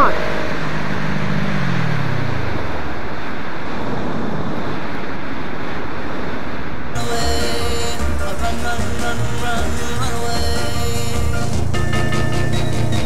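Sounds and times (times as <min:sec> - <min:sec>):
motorcycle engine: 0:00.0 - 0:03.5, 0:07.0 - 0:13.0
wind rushing over microphone: 0:00.0 - 0:07.0.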